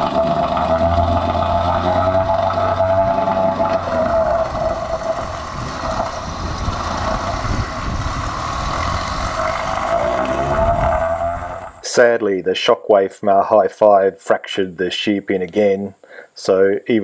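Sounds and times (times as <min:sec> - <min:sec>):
outboard engine running: 0:00.0 - 0:11.8
propeller churning water: 0:00.0 - 0:11.8.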